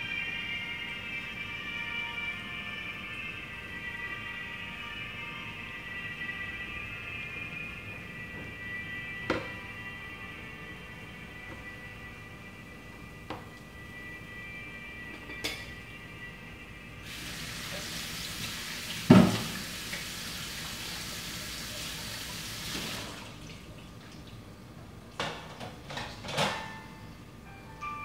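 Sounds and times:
water tap running: 17.0 - 24.4.

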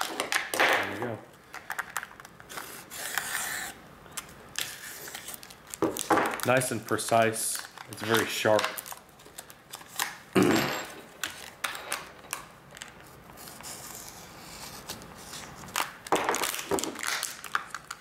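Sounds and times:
plastic blister pack crinkling: 4.1 - 10.2, 15.6 - 18.0.

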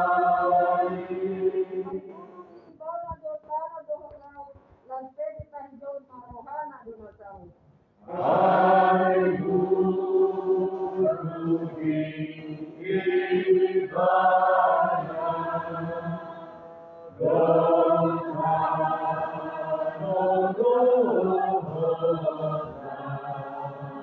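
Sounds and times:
group singing slow hymn: 0.0 - 2.5, 8.0 - 24.0.

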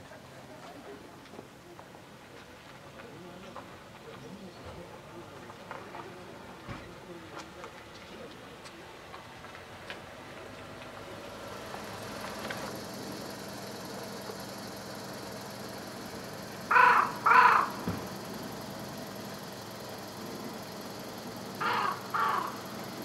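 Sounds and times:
faint outdoor background: 0.0 - 23.0
crow cawing: 16.7 - 17.8, 21.6 - 22.7.

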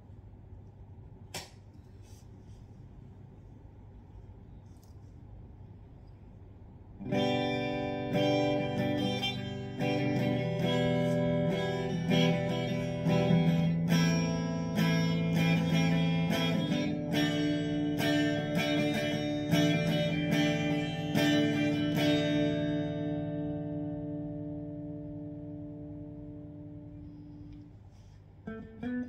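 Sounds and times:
electric guitar chords and notes: 7.0 - 27.6.

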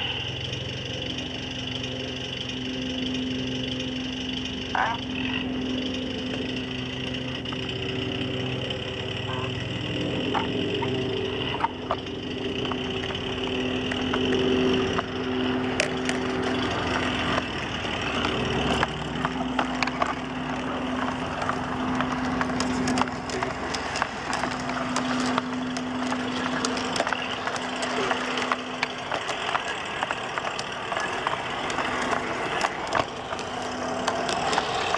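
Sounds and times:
model train motor humming: 0.0 - 34.9
sharp clicks: 5.7 - 34.9.

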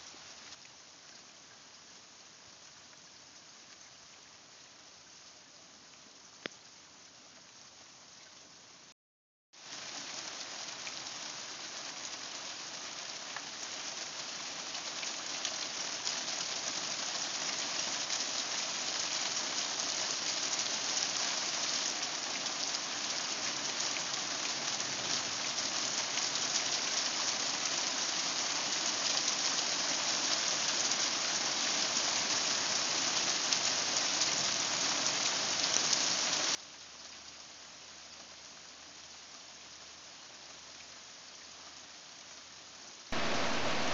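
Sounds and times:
heavy rain: 9.6 - 42.3, 42.9 - 43.9.

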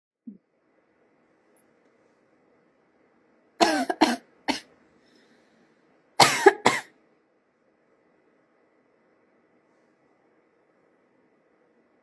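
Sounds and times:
woman coughing: 3.6 - 4.7, 6.2 - 6.9.

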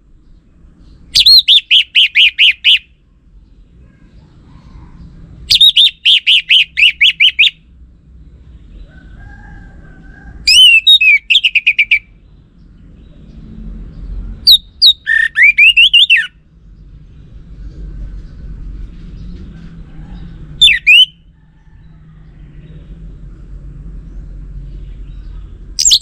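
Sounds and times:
thrush singing whistled notes: 1.1 - 2.9, 5.5 - 7.6, 10.5 - 12.2, 14.4 - 16.4, 20.6 - 21.3, 25.8 - 26.0.

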